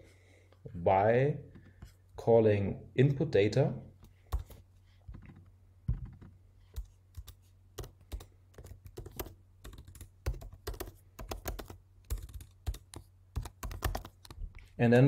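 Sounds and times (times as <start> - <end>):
computer keyboard typing: 4.3 - 14.4.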